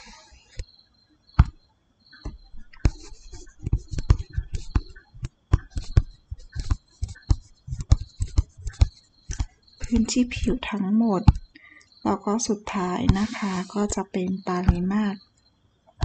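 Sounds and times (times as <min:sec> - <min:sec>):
stylus tapping on tablet screen: 0:02.2 - 0:11.6, 0:12.8 - 0:14.0, 0:14.6 - 0:15.0.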